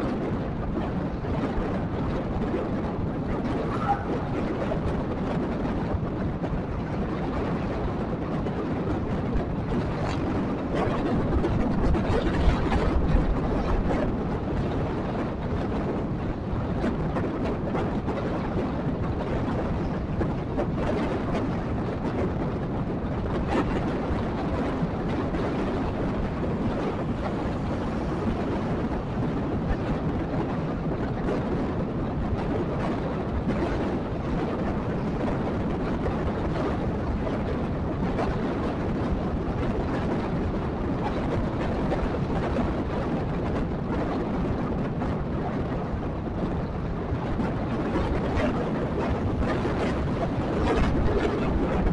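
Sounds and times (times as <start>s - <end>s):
motorcycle road rumble: 0.0s - 51.9s
wind rush on microphone: 0.0s - 51.9s.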